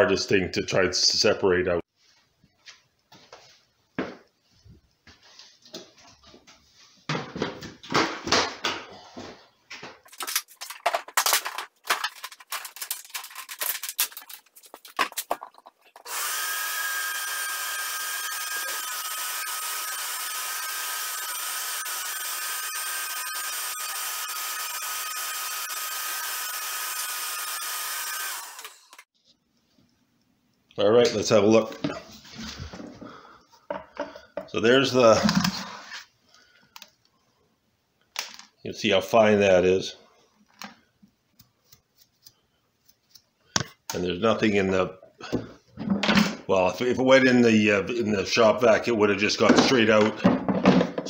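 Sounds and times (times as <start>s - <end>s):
shop vacuum whining: 16.0s - 29.0s
plastic lid and hose clatter: 35.1s - 35.8s, 49.4s - 51.0s.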